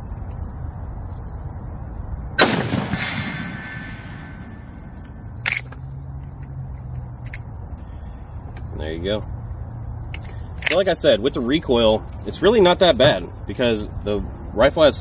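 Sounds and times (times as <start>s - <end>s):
faint ring of steel target: 2.4s - 4.9s
rifle shot with echo: 2.4s - 5.6s
rifle lever metallic clack: 5.4s - 5.8s.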